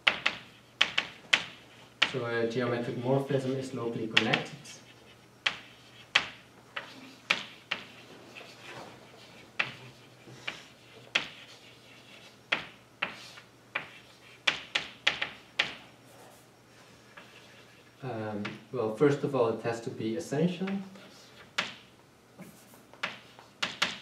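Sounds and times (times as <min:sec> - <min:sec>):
chalk tapping on blackboard: 0:00.0 - 0:02.2, 0:04.2 - 0:04.5, 0:05.4 - 0:08.6, 0:09.6 - 0:15.8, 0:21.4 - 0:21.8, 0:22.4 - 0:24.0.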